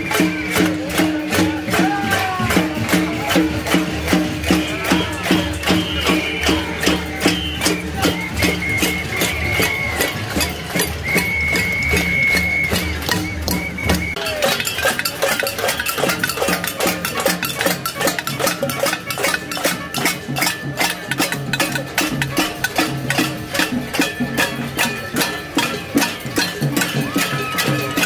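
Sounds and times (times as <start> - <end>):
banging on pots and pans: 14.2 - 28.0.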